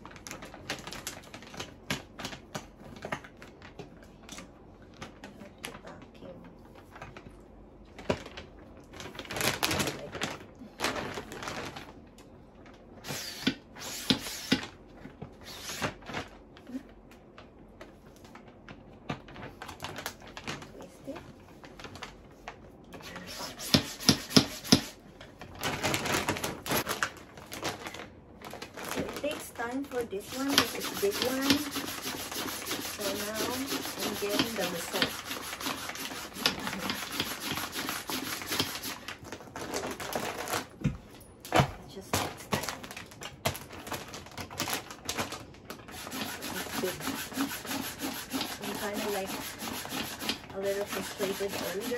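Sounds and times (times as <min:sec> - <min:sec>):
hand pump hissing air: 0:13.0 - 0:14.6
plastic hand pump strokes: 0:23.0 - 0:25.0, 0:30.2 - 0:39.0, 0:45.9 - 0:51.9.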